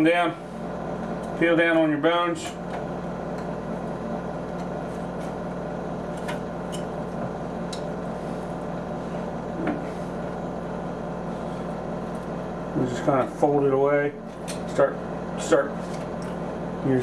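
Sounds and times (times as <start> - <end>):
mechanical hum: 0.0 - 17.0.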